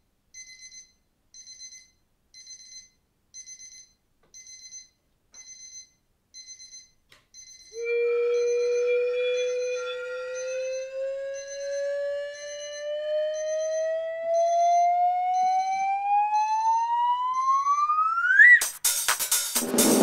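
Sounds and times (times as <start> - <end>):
alarm clock beeping: 0.4 - 18.6
sustained ringing musical tone: 7.8 - 11.8.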